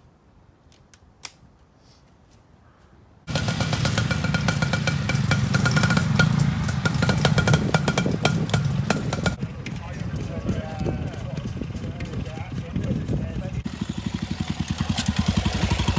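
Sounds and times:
motorcycle engines running: 3.3s - 15.9s.

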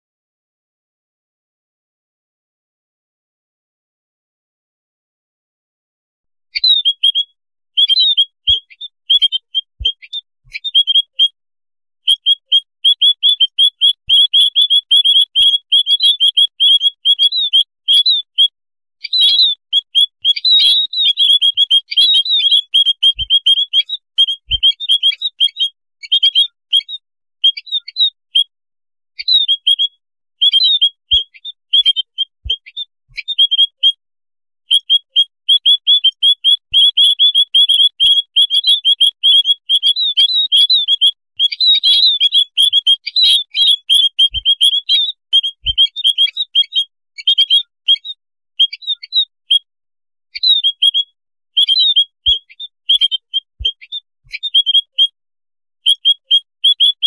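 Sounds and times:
birds chattering: 19.1s - 25.6s, 34.7s - 46.8s.

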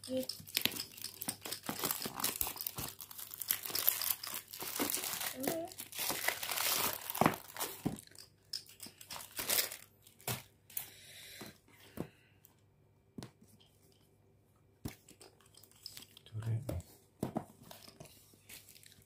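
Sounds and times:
plastic bag crinkling: 0.5s - 10.3s.

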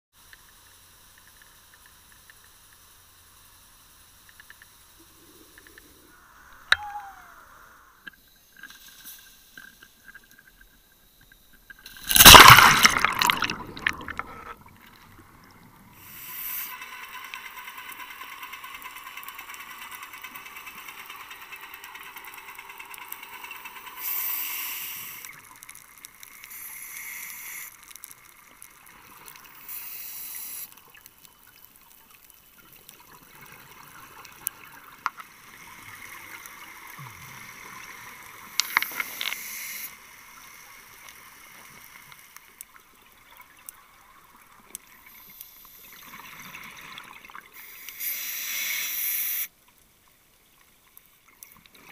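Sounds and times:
steady hiss: 0.2s - 51.9s
underwater bubbling rush: 12.0s - 16.2s.

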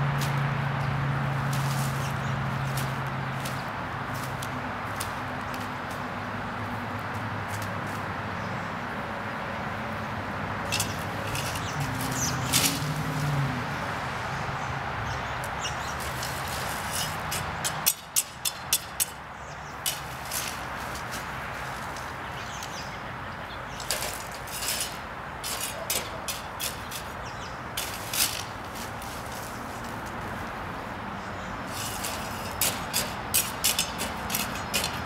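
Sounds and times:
outdoor background hiss: 0.0s - 35.0s
broom sweeping ground: 1.2s - 6.2s, 10.6s - 13.5s, 15.8s - 17.6s, 19.8s - 22.8s, 23.8s - 30.7s, 31.6s - 35.0s.

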